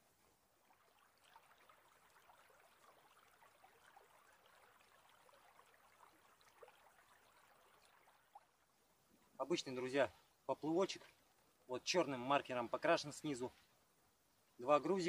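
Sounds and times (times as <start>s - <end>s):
faint babbling river: 0.0s - 15.0s.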